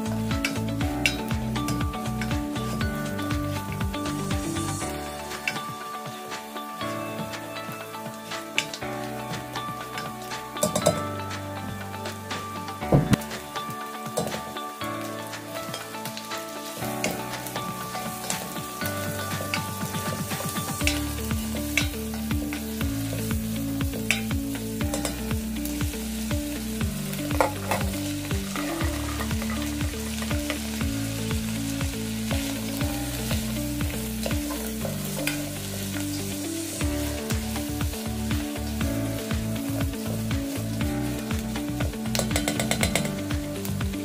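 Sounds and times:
background music with bass line: 0:00.0 - 0:44.0
onions and chicken sizzling: 0:00.0 - 0:44.0.

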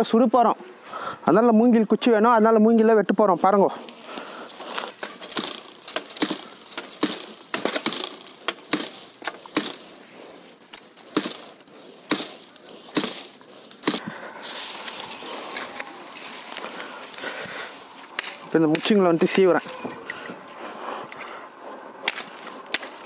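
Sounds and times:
dry leaves crackling: 0:03.7 - 0:23.0
blade chopping bamboo: 0:04.9 - 0:10.1, 0:10.7 - 0:14.2, 0:18.1 - 0:19.7, 0:22.0 - 0:23.0.

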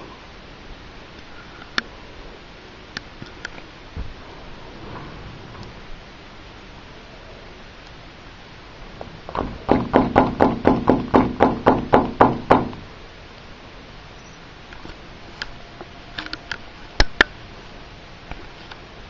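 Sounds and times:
sharp knocks: 0:09.3 - 0:12.8.

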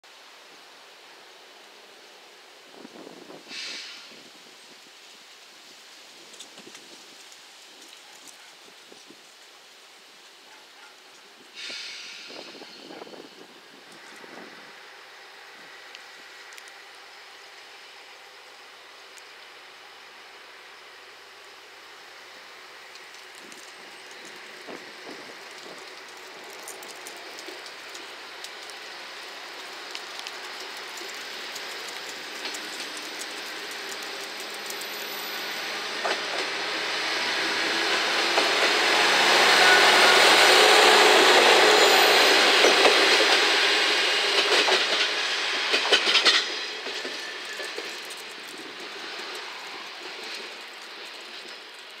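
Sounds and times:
diesel railcar engine: 0:00.1 - 0:52.0
wheels clattering over rail joints: 0:22.9 - 0:36.6, 0:41.3 - 0:52.0.

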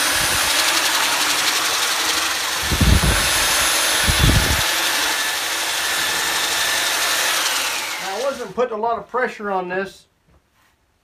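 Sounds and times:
belt sander whirring: 0:00.0 - 0:08.7.

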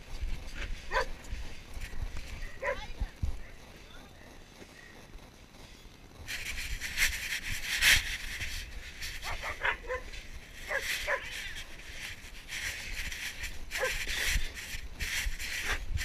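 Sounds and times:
camera rustling hiss: 0:00.0 - 0:16.0
dog barking: 0:00.9 - 0:01.2, 0:02.6 - 0:02.9, 0:09.2 - 0:10.1, 0:10.7 - 0:11.3, 0:13.8 - 0:14.0.

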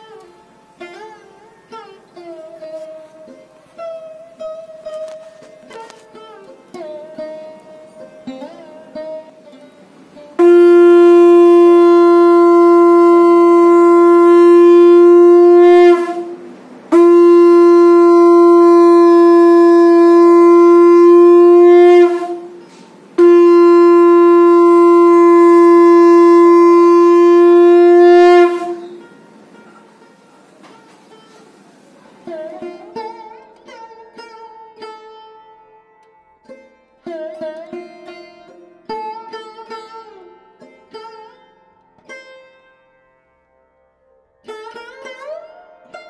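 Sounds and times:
conch shell blasts: 0:10.4 - 0:31.6.

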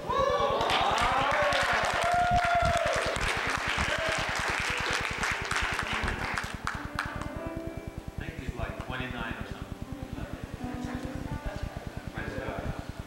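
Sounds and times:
congregation applauding: 0:00.5 - 0:07.4.

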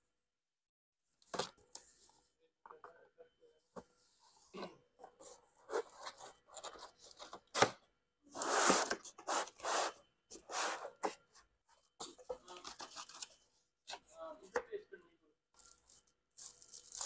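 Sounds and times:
paper and cardboard rustling: 0:05.0 - 0:07.7, 0:08.4 - 0:14.1.

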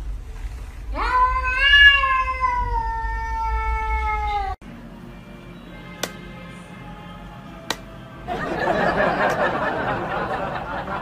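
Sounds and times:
cat meowing: 0:01.0 - 0:04.6.

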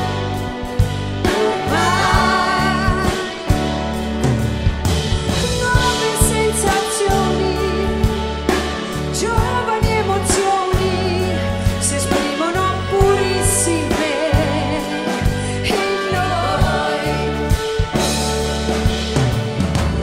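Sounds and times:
orchestra playing pop ballad: 0:00.0 - 0:20.0
woman singing: 0:01.2 - 0:03.6, 0:05.3 - 0:17.5.

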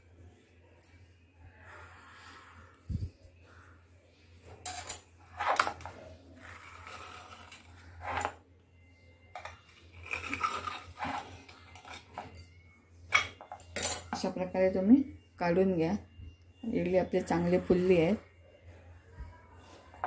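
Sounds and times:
knife scraping metal plate: 0:06.4 - 0:08.4.

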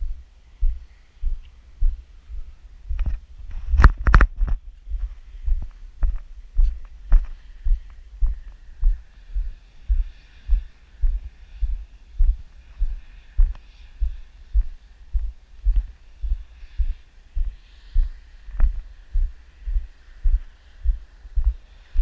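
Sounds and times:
deep thumping pulse: 0:04.4 - 0:21.6.

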